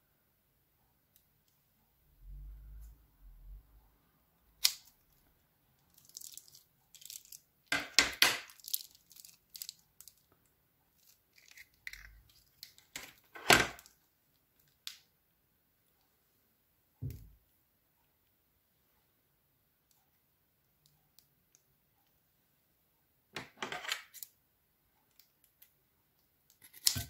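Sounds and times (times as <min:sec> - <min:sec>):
plastic bag crinkling: 0:05.9 - 0:07.4, 0:08.4 - 0:10.2.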